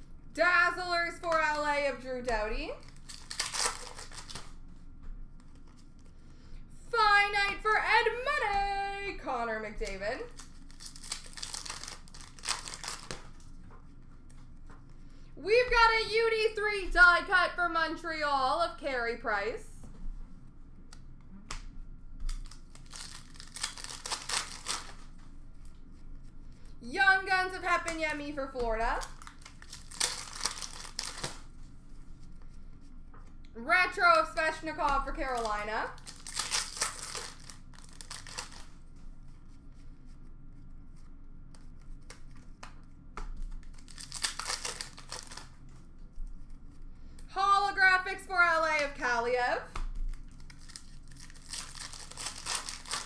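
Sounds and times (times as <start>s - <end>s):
wrappers and cards rustling: 0.0s - 15.9s, 22.1s - 53.0s
foil wrappers tearing: 2.8s - 4.6s, 9.9s - 13.5s, 22.3s - 25.1s, 28.9s - 31.5s, 35.2s - 38.7s, 43.4s - 45.6s, 50.0s - 53.0s.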